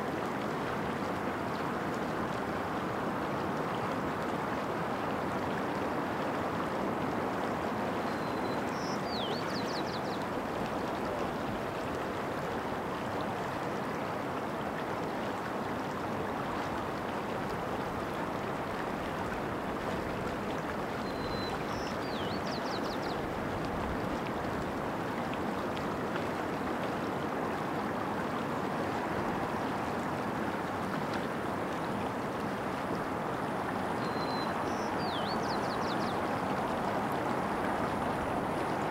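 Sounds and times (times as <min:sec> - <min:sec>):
creek water running: 0:00.0 - 0:38.9
small bird singing: 0:34.0 - 0:36.2.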